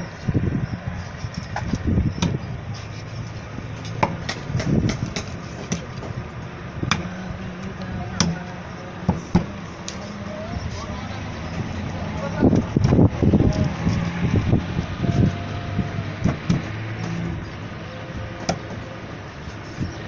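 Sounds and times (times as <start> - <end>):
knife chopping fish on block: 4.0 - 5.9.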